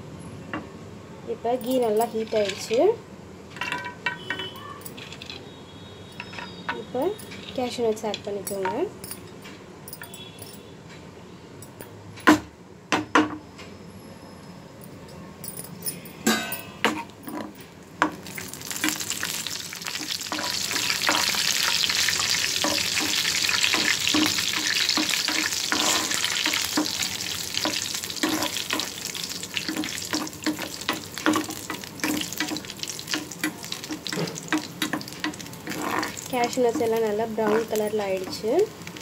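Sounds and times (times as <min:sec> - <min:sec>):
nuts sizzling in hot fat: 0:02.0 - 0:03.0, 0:18.0 - 0:39.0
spoon stirring in pan: 0:18.0 - 0:39.0.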